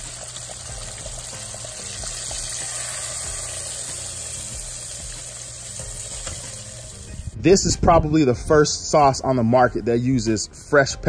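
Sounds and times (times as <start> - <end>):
fish deep-frying in oil: 0.0 - 7.4.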